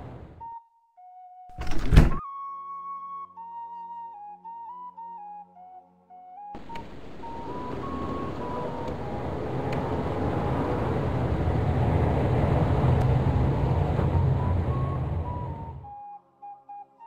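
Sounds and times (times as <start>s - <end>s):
bus engine humming: 0.0s - 0.4s, 6.6s - 15.9s
soft flute tune: 0.4s - 1.5s, 2.2s - 11.0s, 13.2s - 17.0s.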